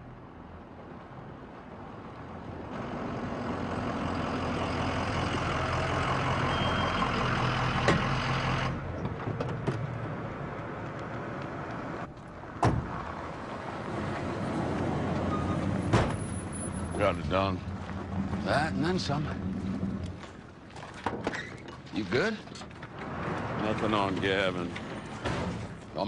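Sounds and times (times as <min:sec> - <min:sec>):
truck door slamming: 0:12.6 - 0:13.0, 0:15.8 - 0:16.3.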